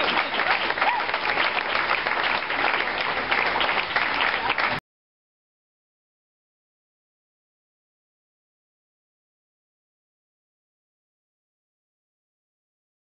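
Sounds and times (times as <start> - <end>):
brief cheer: 0.0 - 1.3
audience applauding: 0.0 - 4.8.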